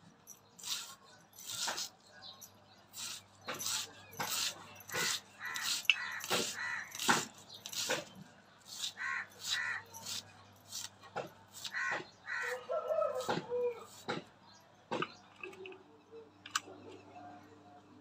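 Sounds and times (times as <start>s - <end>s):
onion being sliced on blade: 3.0s - 8.1s.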